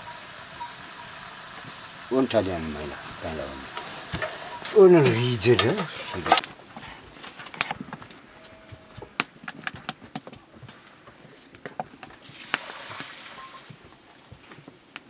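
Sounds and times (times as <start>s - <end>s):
wood fire crackling: 0.0s - 8.2s.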